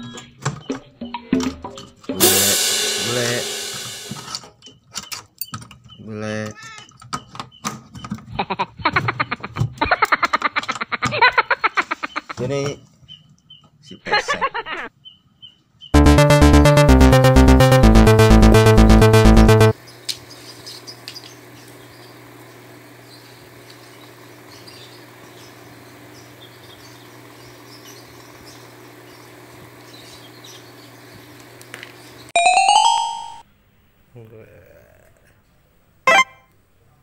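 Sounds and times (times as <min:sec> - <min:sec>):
background music with steady beat: 0:00.6 - 0:04.4, 0:16.0 - 0:19.8
bright chime sound effect: 0:32.4 - 0:33.4.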